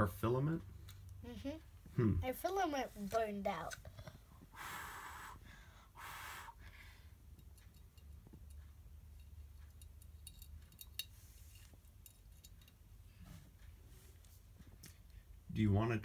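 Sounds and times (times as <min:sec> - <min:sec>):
short breathy hiss: 0:04.5 - 0:07.0.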